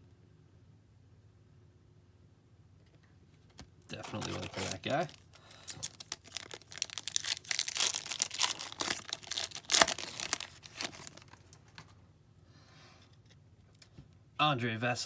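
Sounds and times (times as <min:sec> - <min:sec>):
foil wrapper tearing and crinkling: 0:03.9 - 0:11.6.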